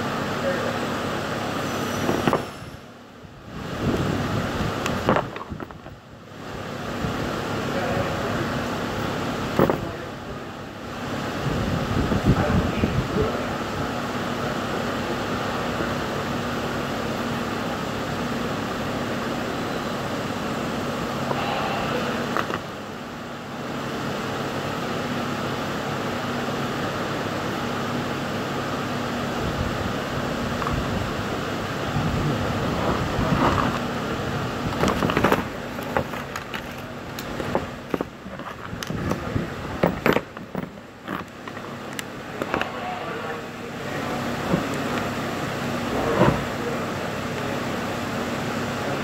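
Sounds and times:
ventilation hum and rush: 0:00.0 - 0:49.0
tools and wires being handled: 0:34.7 - 0:42.7.

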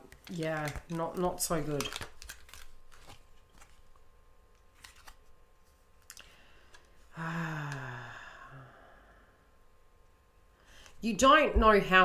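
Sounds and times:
woman humming hmm: 0:07.1 - 0:09.0.

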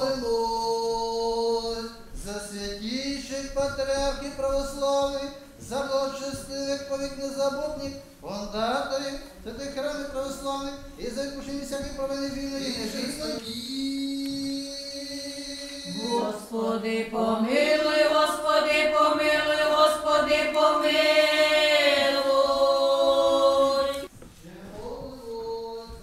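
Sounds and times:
women's choir chanting: 0:15.9 - 0:24.1.

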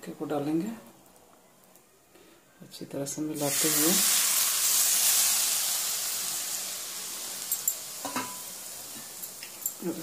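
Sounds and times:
hot oil sizzling on vegetables: 0:03.4 - 0:10.0.

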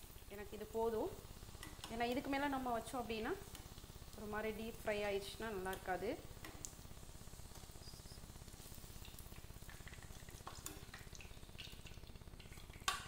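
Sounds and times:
eggplant slices frying in oil: 0:00.0 - 0:13.0
low steady hum: 0:00.0 - 0:13.0.

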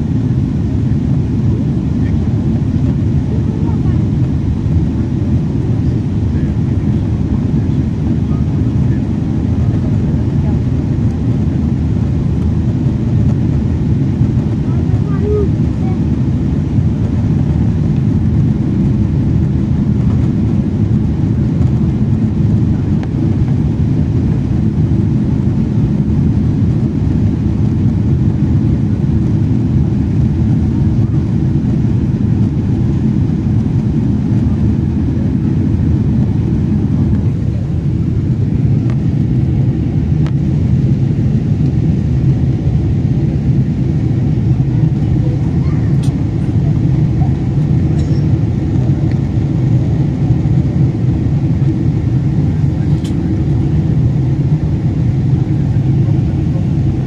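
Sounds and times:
jet engines rumbling in cabin: 0:00.0 - 0:57.0.

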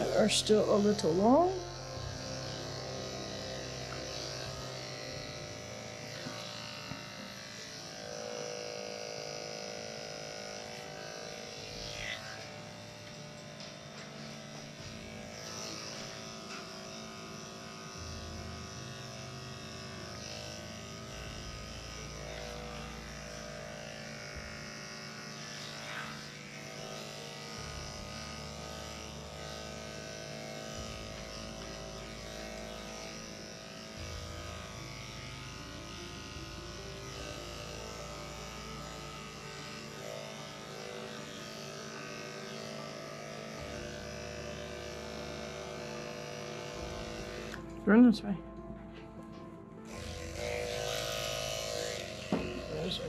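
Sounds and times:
electric clippers running: 0:00.0 - 0:53.0.

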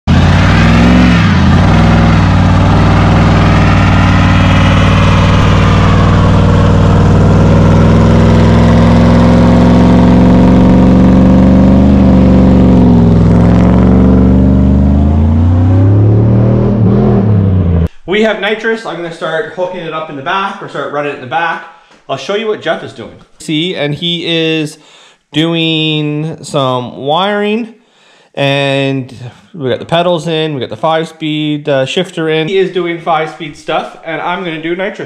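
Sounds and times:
pickup engine revving: 0:00.1 - 0:17.9.

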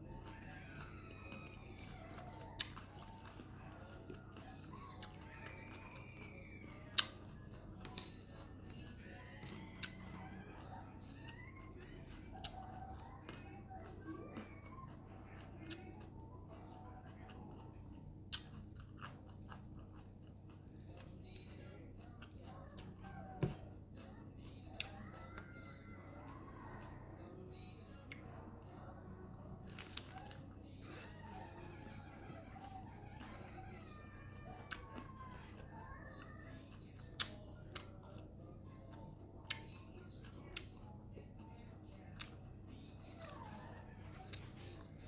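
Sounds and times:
crisp lettuce crackling: 0:29.6 - 0:32.6.

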